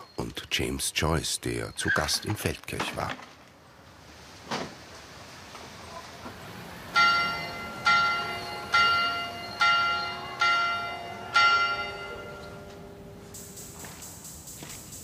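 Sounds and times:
small turret bell ringing: 0:07.0 - 0:13.2.

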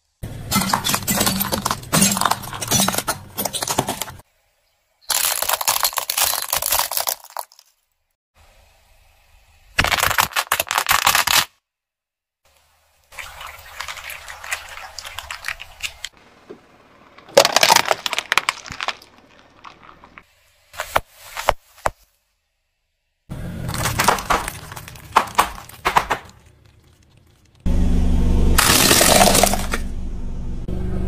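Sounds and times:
tyre crushing plastic objects: 0:00.5 - 0:04.2, 0:05.1 - 0:07.7, 0:09.8 - 0:11.6, 0:17.2 - 0:20.2, 0:23.6 - 0:27.6, 0:28.6 - 0:29.8.

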